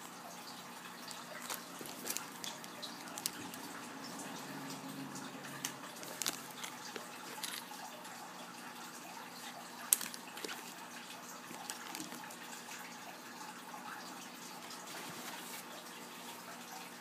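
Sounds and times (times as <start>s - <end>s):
plastic and foam rustling: 1.1s - 3.7s, 6.0s - 7.6s, 14.6s - 16.4s.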